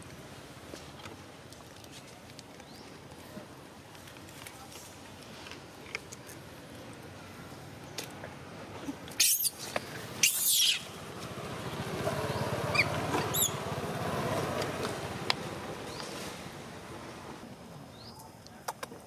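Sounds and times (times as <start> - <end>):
high squeaks: 9.2 - 10.8, 12.7 - 13.6
monkey screeches: 9.2 - 10.9, 12.7 - 13.6.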